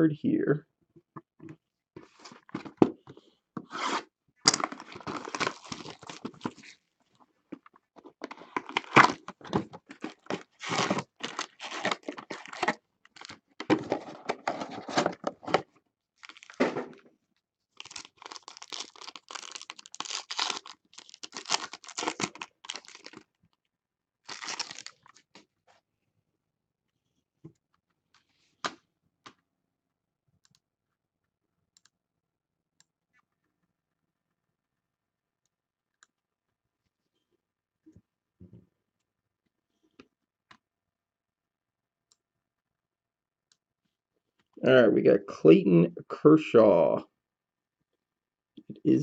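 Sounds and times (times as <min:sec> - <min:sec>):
wrapping tearing and crinkling: 0:04.5 - 0:06.8, 0:08.2 - 0:15.6, 0:16.2 - 0:16.6, 0:17.8 - 0:23.3, 0:24.3 - 0:25.4.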